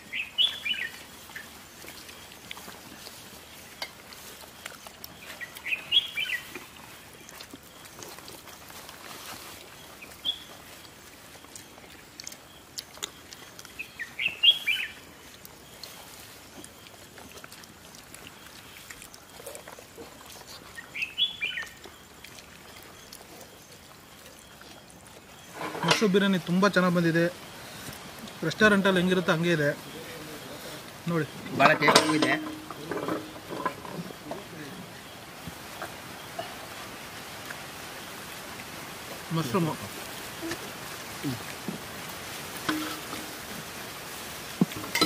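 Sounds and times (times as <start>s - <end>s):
bird chirping: 0.0s - 1.5s, 4.6s - 6.6s, 12.2s - 16.9s, 20.7s - 22.2s.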